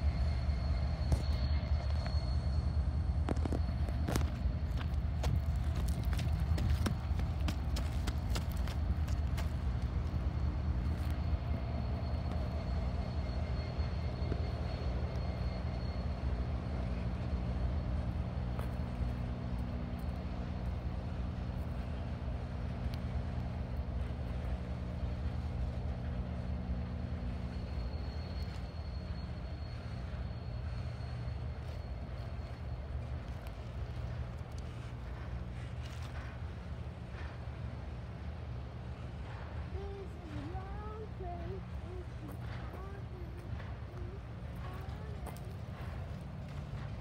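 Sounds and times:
high squeal: 0.0s - 7.1s, 10.0s - 21.2s, 24.6s - 34.7s
train wheels rumbling on rail: 0.0s - 47.0s.

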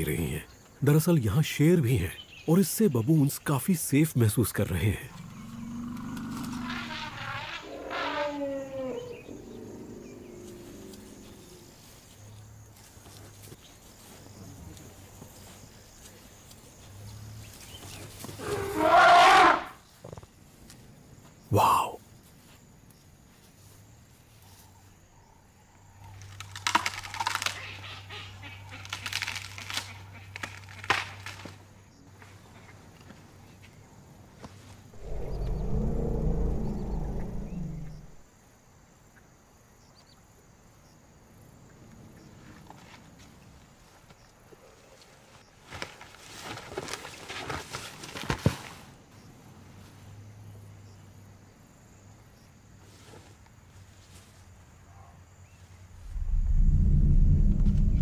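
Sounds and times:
twigs cracking: 26.1s - 27.7s, 28.8s - 31.6s
grass and twigs rustling and crunching: 26.1s - 27.8s, 28.7s - 33.2s, 44.9s - 49.0s
faint low hum: 35.0s - 38.3s, 55.9s - 58.0s.

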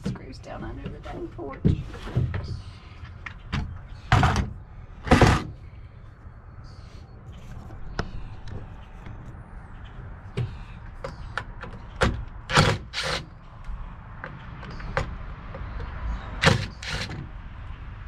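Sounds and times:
cordless drill bursts: 16.4s - 17.1s.

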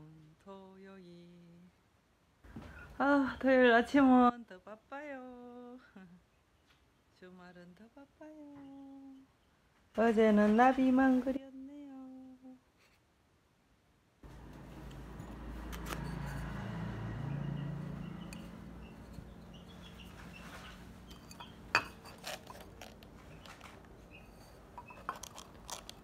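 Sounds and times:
clay flowerpots clinking: 14.3s - 16.6s, 18.2s - 26.0s.

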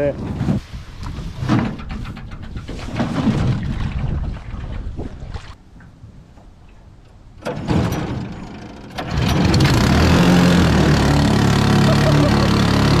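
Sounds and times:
wind rumbling on microphone: 0.0s - 7.4s
water knocks and splashes: 1.0s - 8.3s.

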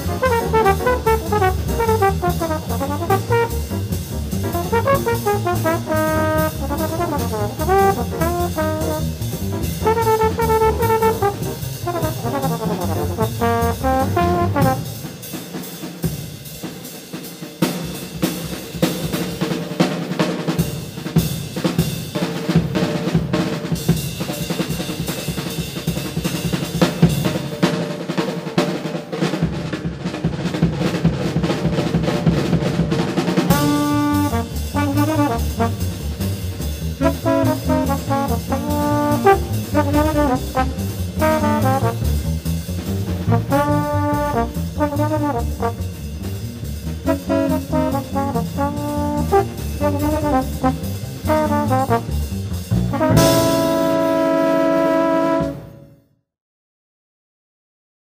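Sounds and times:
trombone fast runs: 0.0s - 15.2s, 33.4s - 36.3s, 37.0s - 56.0s
jazz drums: 0.0s - 55.9s.

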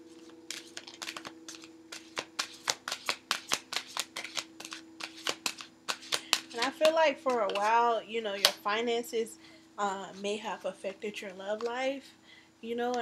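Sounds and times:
cards being shuffled: 0.1s - 8.7s.

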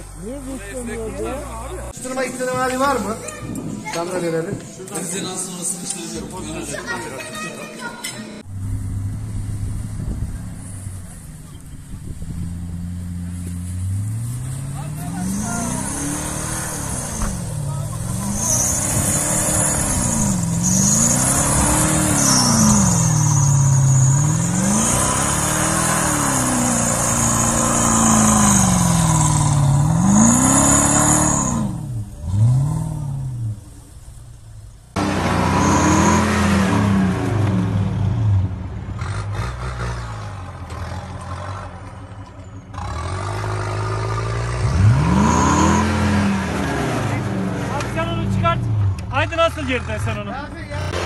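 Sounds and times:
suv engine revving: 8.4s - 42.0s, 42.7s - 51.0s.

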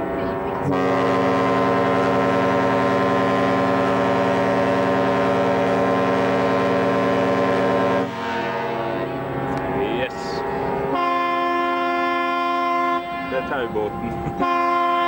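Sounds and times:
ship whistle blast: 0.6s - 9.3s, 10.4s - 15.0s.

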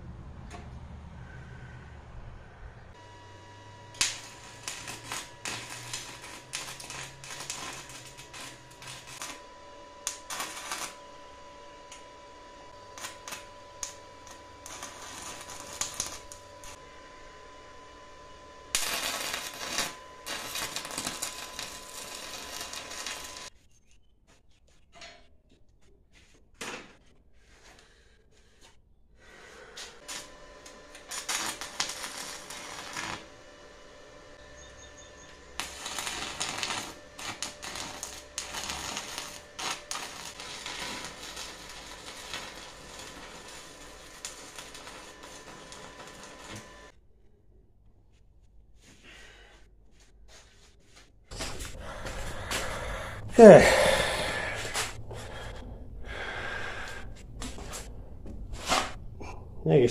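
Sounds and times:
electric arc welding crackling: 3.4s - 12.0s, 12.7s - 16.8s, 18.7s - 23.5s, 30.0s - 46.9s, 51.3s - 55.4s.

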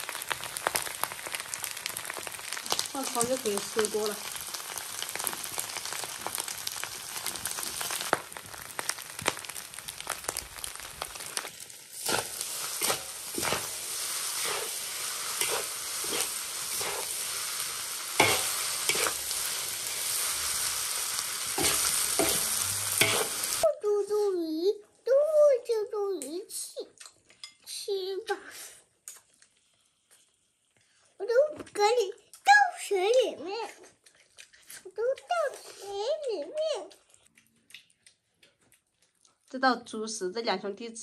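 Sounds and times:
fried rice sizzling in a wok: 0.0s - 23.7s
spatula scraping a wok: 11.9s - 23.6s.

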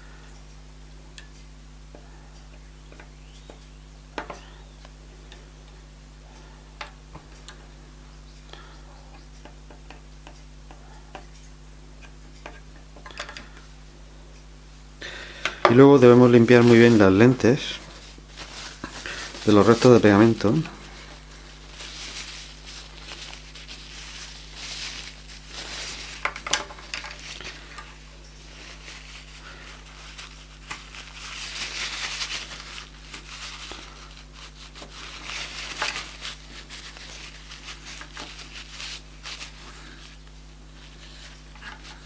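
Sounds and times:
tissue rubbing on glass lens: 16.1s - 27.6s, 28.4s - 42.0s.

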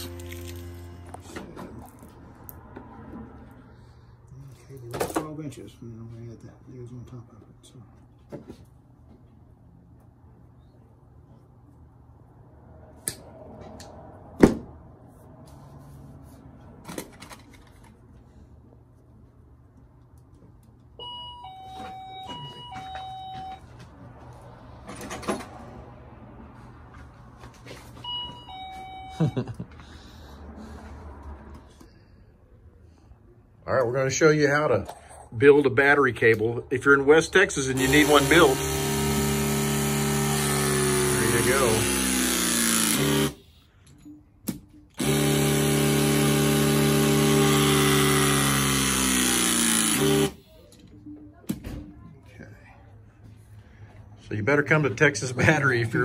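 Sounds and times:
two-tone door chime: 21.0s - 23.7s, 28.0s - 29.6s
crimping tool pump motor hum: 37.8s - 43.4s, 45.0s - 50.4s.

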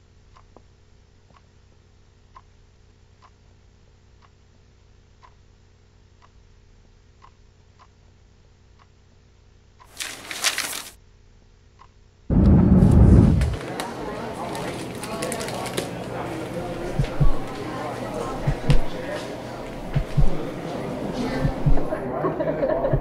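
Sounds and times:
clock ticking: 1.2s - 1.5s, 2.3s - 2.6s, 5.2s - 5.5s, 7.2s - 8.0s, 16.9s - 17.5s, 18.3s - 19.0s, 19.8s - 20.5s, 21.4s - 22.0s
scraping rustling noise: 9.9s - 11.0s.

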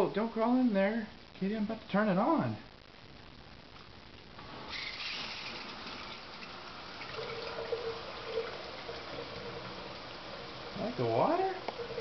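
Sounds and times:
shower water running: 4.4s - 12.0s.

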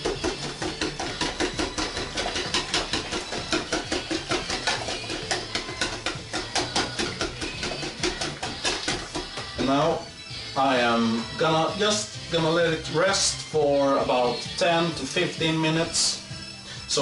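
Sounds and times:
whisk beating batter in bowl: 0.0s - 10.0s.

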